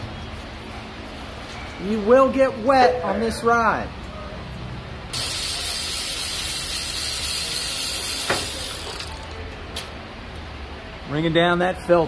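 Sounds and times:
air ratchet hissing: 5.1 - 9.4.

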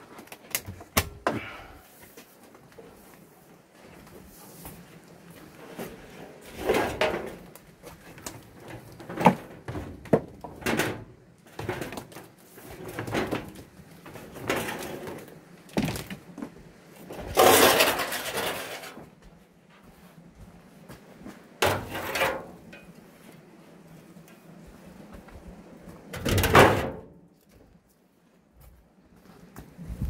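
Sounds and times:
extension cord dragged over concrete: 5.5 - 7.3, 17.1 - 19.0
footsteps: 15.8 - 22.1.

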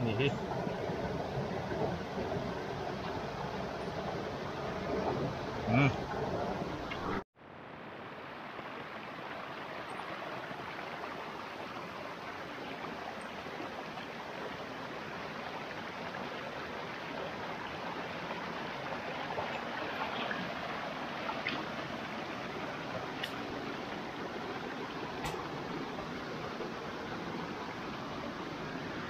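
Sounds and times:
stream running over rocks: 0.0 - 29.0.

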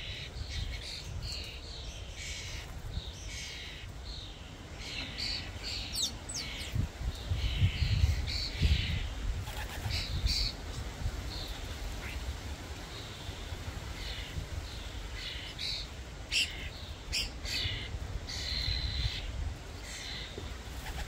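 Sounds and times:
starlings giving harsh rasping calls: 4.8 - 10.6.

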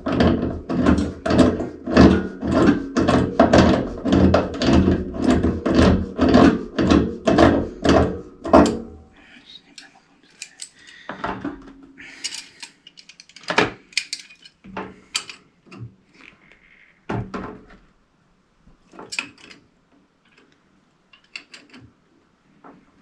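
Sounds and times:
metal tools clinking on fittings: 12.2 - 15.4, 19.1 - 19.6.

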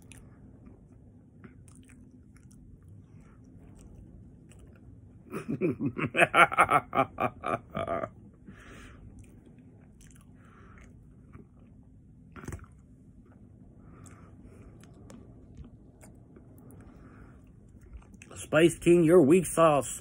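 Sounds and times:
man chewing food: 0.0 - 6.2, 7.4 - 18.5
breathing: 8.4 - 9.2, 10.4 - 11.1, 13.7 - 14.9, 16.8 - 17.6.

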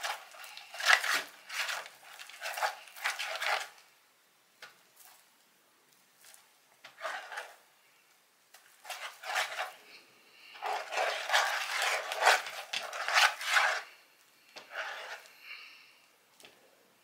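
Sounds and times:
slime rubbing and scraping in bowl: 0.0 - 3.8, 6.9 - 7.7, 8.8 - 9.8, 10.5 - 14.0, 14.6 - 15.3.

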